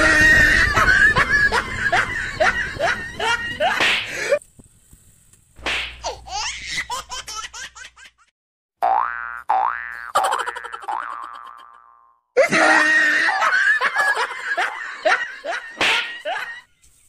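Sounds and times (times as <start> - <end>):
rising cartoon boing: 8.8 - 12.2
laughter sound effect: 10.1 - 11.6, 12.4 - 16.7.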